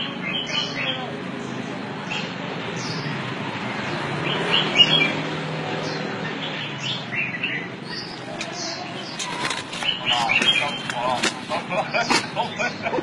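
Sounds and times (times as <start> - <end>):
birds chirping: 0.0 - 13.0
steady background noise: 0.0 - 13.0.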